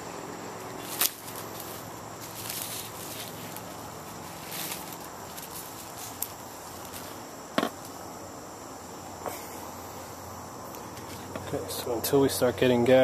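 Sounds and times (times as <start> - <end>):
high insect drone: 0.0 - 13.0.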